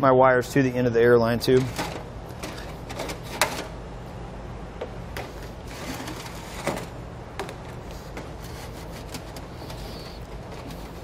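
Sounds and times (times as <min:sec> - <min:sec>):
plastic tubing scraping and rubbing: 0:05.7 - 0:06.9.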